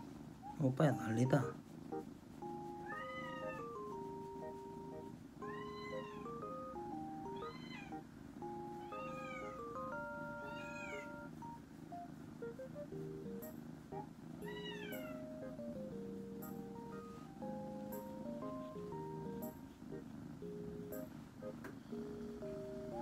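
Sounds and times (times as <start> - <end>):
light background music: 0.0 - 23.0
kitten meowing: 2.8 - 3.7, 5.4 - 6.3, 7.4 - 8.0, 10.4 - 11.1, 14.4 - 15.2.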